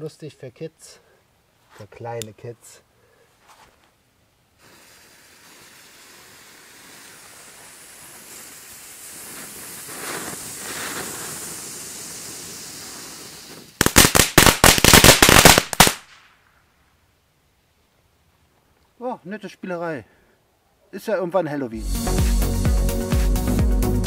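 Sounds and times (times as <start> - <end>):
firework fountains hissing: 4.6 - 16.0
fireworks crackling: 4.6 - 16.6.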